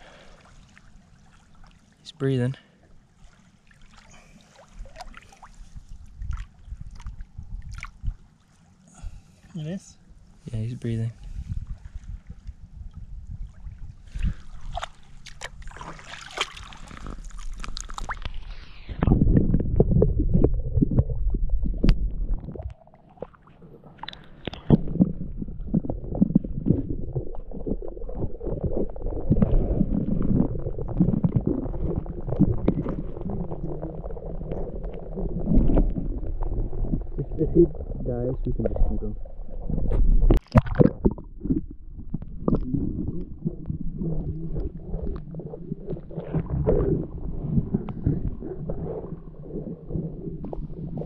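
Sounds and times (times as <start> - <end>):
water splashing and sloshing: 0.0 - 9.6, 11.2 - 51.0
muffled underwater rumble: 10.0 - 51.0.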